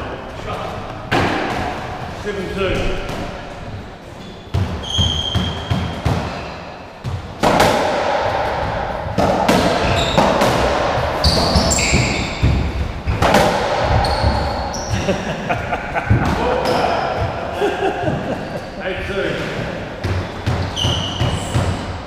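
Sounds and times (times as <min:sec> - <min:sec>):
ball hitting rackets and walls: 0:00.8 - 0:22.0
shoes squeaking on court floor: 0:02.7 - 0:07.3, 0:09.7 - 0:15.2, 0:18.0 - 0:22.0.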